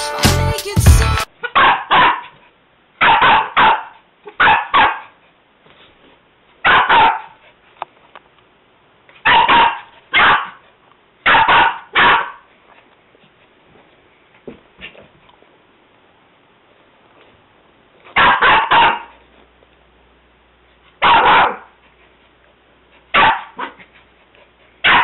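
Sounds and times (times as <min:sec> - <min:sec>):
small dog barking: 0:01.4 - 0:02.4, 0:03.0 - 0:05.2, 0:06.6 - 0:07.4, 0:09.2 - 0:10.6, 0:11.2 - 0:12.5, 0:18.1 - 0:19.1, 0:21.0 - 0:21.8, 0:23.1 - 0:23.8.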